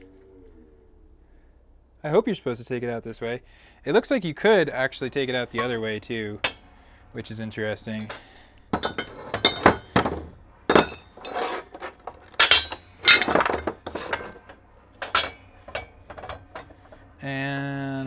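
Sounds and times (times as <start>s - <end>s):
metal parts clanking together: 8.0s - 17.0s.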